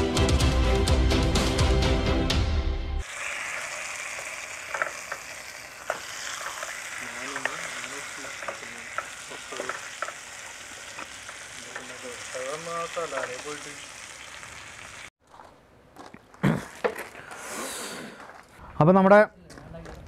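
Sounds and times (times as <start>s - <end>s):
background music: 0.0s - 3.0s
fish sizzling in oil: 3.0s - 15.1s.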